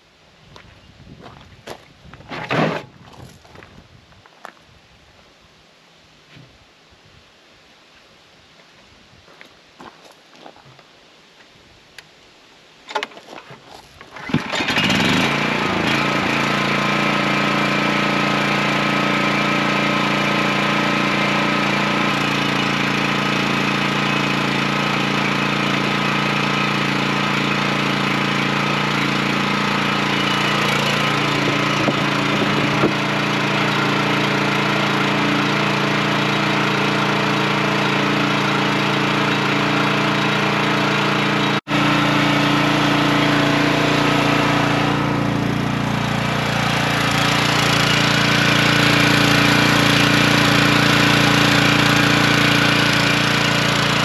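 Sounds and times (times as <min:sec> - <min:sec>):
generator pull-start cord: 0:02.3 - 0:02.9, 0:12.9 - 0:18.5, 0:27.4 - 0:54.0
generator engine running: 0:14.1 - 0:54.0.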